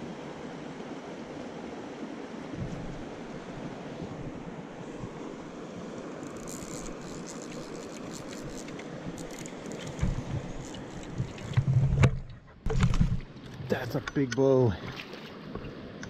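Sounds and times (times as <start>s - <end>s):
river water rushing: 0.0s - 12.0s
wind on microphone: 2.5s - 5.4s
handling noise rustling and clicking: 6.2s - 15.7s.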